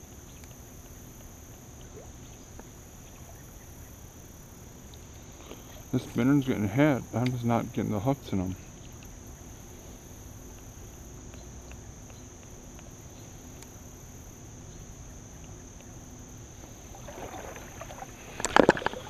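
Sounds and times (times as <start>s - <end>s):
faint insect hum: 0.0s - 19.0s
sharp knocks and rustles: 16.7s - 19.0s.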